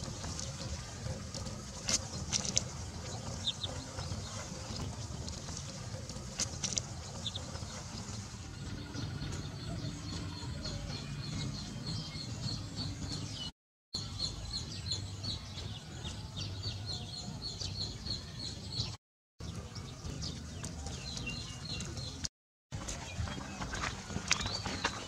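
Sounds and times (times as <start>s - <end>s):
steady low hum: 0.0s - 13.5s
small birds chirping: 0.0s - 25.0s.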